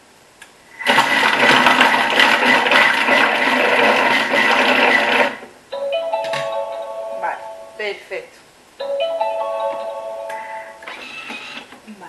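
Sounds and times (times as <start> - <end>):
food processor blade chopping: 0.9 - 5.5.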